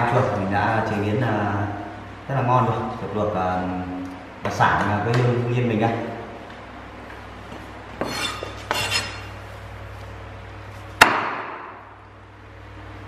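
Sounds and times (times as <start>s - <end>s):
hard knife chop on board: 11.0s - 11.8s.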